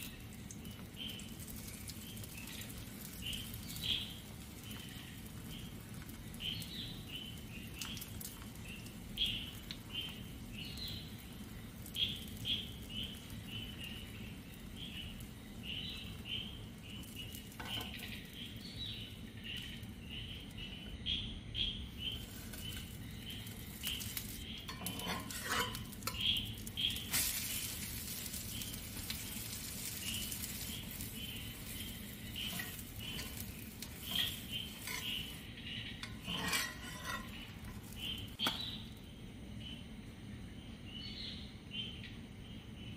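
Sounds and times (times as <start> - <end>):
omelette sizzling in a pan: 0.0 - 39.2
bird chirping: 0.0 - 39.9
utensils clinking and scraping a pan: 17.5 - 18.3, 22.2 - 38.8.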